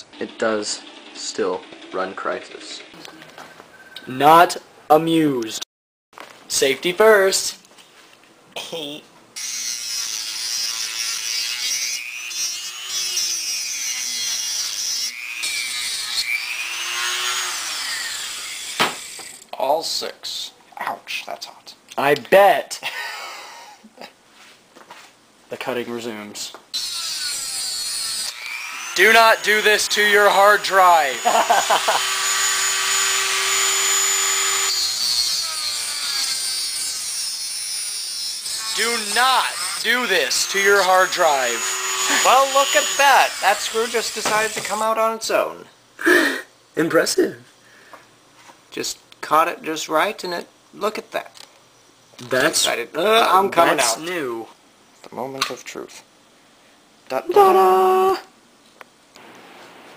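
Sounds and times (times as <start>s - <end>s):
rotary tool grinding metal: 9.4s - 19.4s, 26.8s - 44.8s
rotary tool whine: 9.4s - 19.4s, 26.8s - 44.7s.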